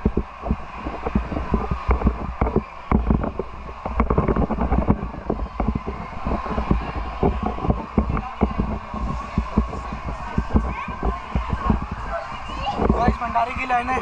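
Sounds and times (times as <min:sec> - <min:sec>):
handling knocks and taps: 0:00.0 - 0:13.3
wind buffeting microphone: 0:00.0 - 0:14.0.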